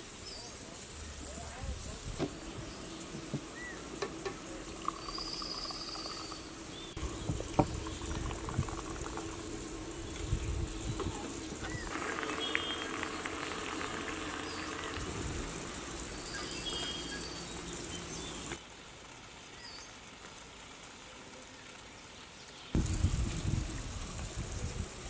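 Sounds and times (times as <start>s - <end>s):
steady low hum: 0.7s - 18.6s
high bird chirps: 4.8s - 9.1s, 10.0s - 13.1s, 16.0s - 18.6s.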